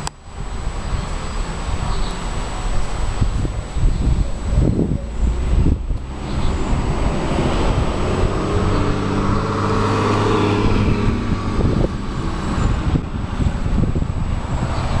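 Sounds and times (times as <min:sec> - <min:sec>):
wind rumble on microphone: 0:00.0 - 0:15.0
vehicle engine passing by: 0:04.2 - 0:15.0.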